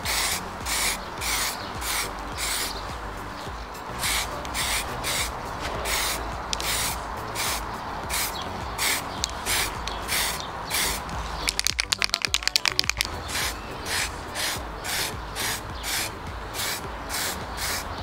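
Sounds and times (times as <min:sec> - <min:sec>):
spray can hissing bursts: 0:00.0 - 0:02.9, 0:03.9 - 0:18.0
rapid clicks: 0:10.9 - 0:13.4.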